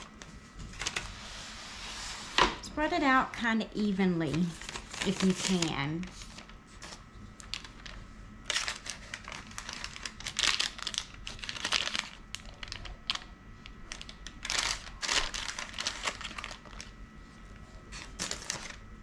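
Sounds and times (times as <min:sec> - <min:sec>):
parchment paper rustling: 0:03.8 - 0:18.8.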